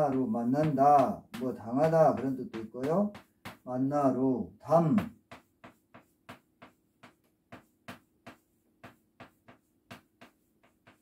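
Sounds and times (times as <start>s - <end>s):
chalk tapping on blackboard: 0.0s - 11.0s.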